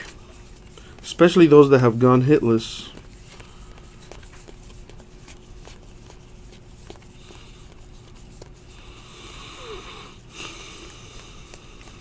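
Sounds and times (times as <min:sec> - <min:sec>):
trading cards flipping: 0:00.0 - 0:08.8
faint steady hum: 0:00.0 - 0:12.0.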